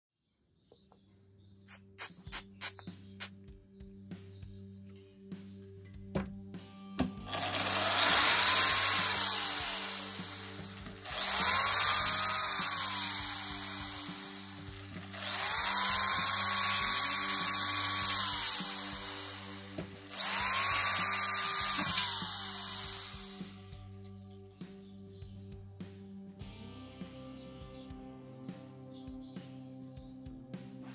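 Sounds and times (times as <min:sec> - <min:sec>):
faint background music: 0:00.5 - 0:30.9
electric drill motor: 0:07.1 - 0:24.0
drill bit rubbing on steel: 0:07.4 - 0:23.9.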